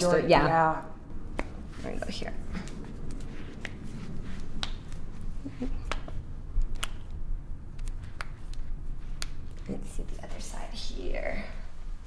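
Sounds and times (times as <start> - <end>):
finger joints cracking: 5.7 - 9.5.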